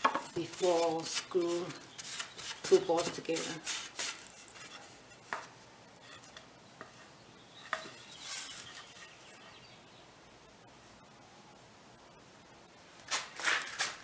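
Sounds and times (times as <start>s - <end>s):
wooden boards knocking: 0.0s - 0.3s.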